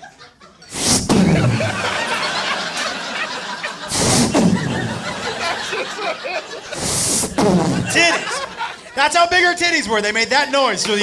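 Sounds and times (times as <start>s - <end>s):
audience laughing: 0.0s - 9.1s
person making swishing mouth sound: 0.7s - 1.6s, 3.9s - 5.0s, 6.7s - 8.0s
blast of noise into microphone: 0.7s - 1.7s, 3.9s - 5.1s, 6.8s - 8.0s.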